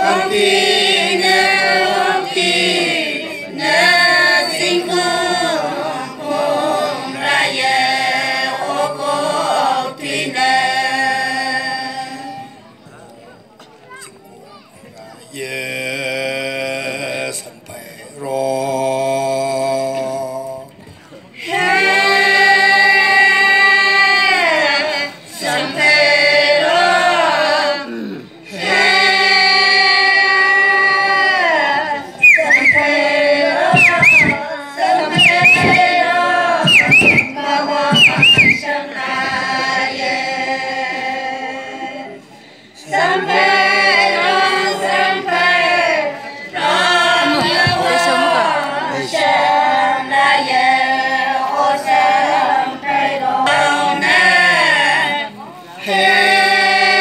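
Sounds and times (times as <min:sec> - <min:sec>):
women singing unaccompanied: 0:00.0 - 0:12.6, 0:21.3 - 0:57.0
high calls: 0:32.2 - 0:34.5, 0:35.1 - 0:36.0, 0:36.6 - 0:38.7.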